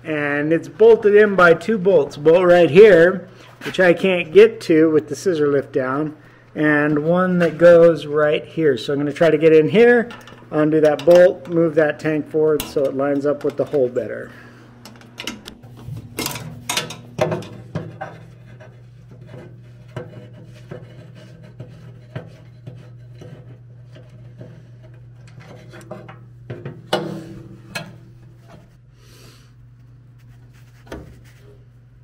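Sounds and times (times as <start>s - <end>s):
steady low hum: 0.0s - 32.0s
metal clatter: 14.9s - 28.8s.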